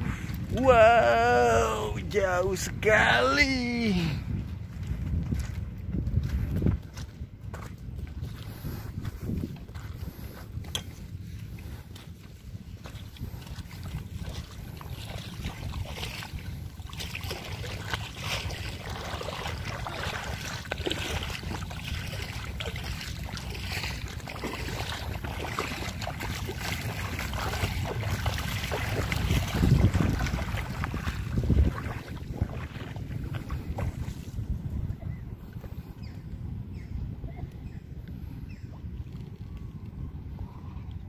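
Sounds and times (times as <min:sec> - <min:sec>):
wind buffeting microphone: 0:00.0 - 0:41.0
splashing in shallow water: 0:09.6 - 0:35.2.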